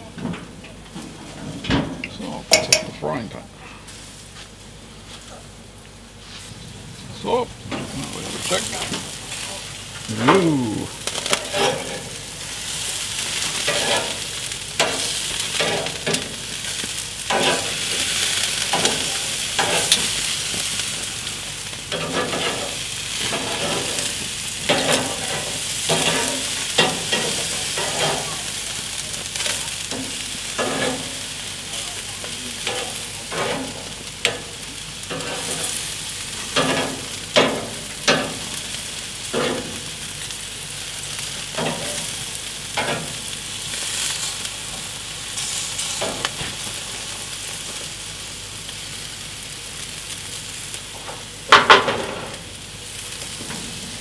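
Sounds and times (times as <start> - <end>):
meat sizzling on grill: 0.8 - 54.0
steel tongs clinking on grate: 2.5 - 3.0, 11.2 - 12.1, 24.7 - 28.3.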